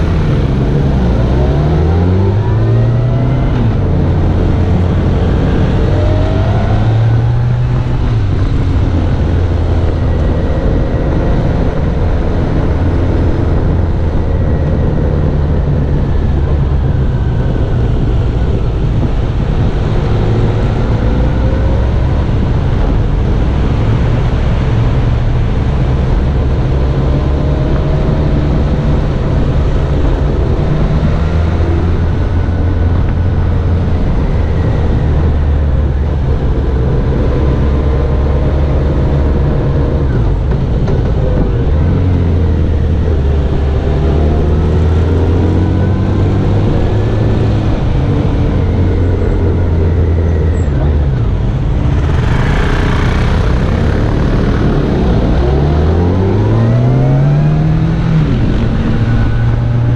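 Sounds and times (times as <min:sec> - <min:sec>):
motorcycle engine running: 0:45.1 - 0:56.5.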